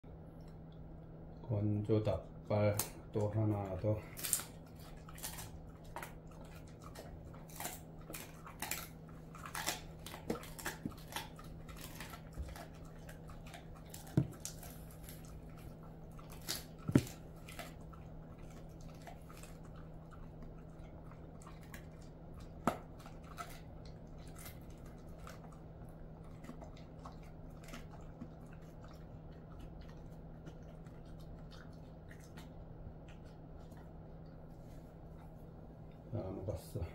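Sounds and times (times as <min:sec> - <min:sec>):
dog chewing bone: 0:02.2 - 0:35.4
crisp crunches of bone: 0:04.1 - 0:15.6.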